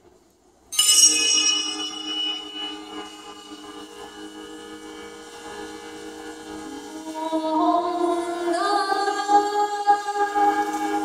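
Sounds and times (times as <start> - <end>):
higher melody: 0.8 - 7.4
organistrum drone: 0.8 - 9.1.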